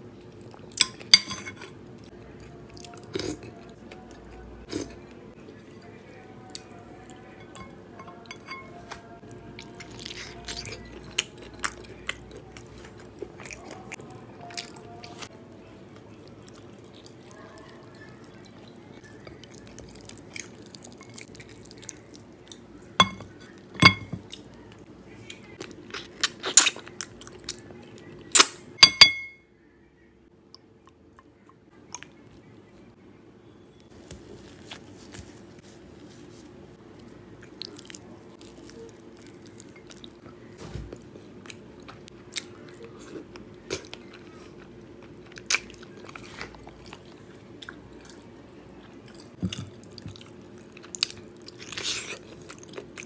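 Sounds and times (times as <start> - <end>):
wet chewing and eating: 8.9 - 28.5, 33.9 - 53.0.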